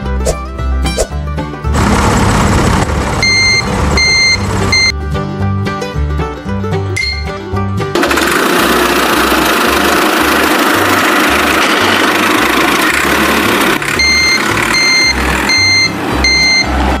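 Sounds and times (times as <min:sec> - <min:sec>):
reversing alarm beeping: 0:03.2 - 0:04.9, 0:14.0 - 0:16.7.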